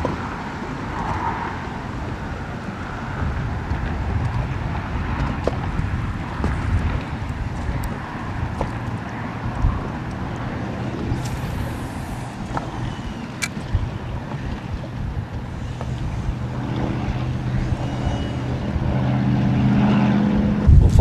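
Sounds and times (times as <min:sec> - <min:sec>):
motorboat engine humming: 0:00.0 - 0:21.0
water noise: 0:00.0 - 0:21.0
wind: 0:00.0 - 0:21.0.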